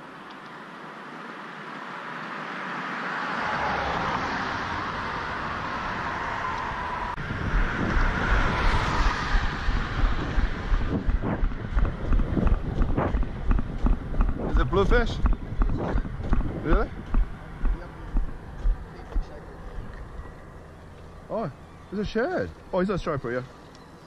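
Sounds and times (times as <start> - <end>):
road traffic passing: 0.0 - 24.0
wind buffeting microphone: 5.0 - 20.6.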